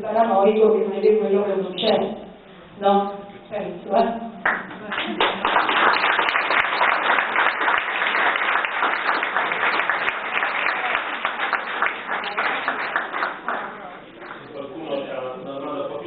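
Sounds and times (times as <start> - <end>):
people applauding: 4.4 - 14.6.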